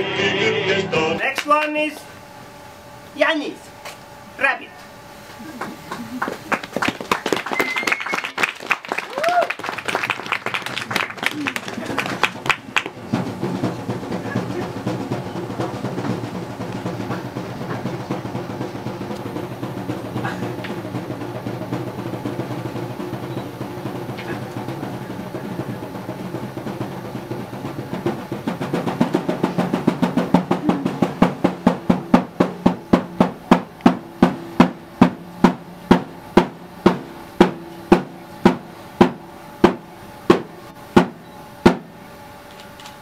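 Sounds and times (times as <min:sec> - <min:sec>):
drum roll and strikes: 0:11.2 - 0:41.9
low steady drone: 0:12.6 - 0:42.8.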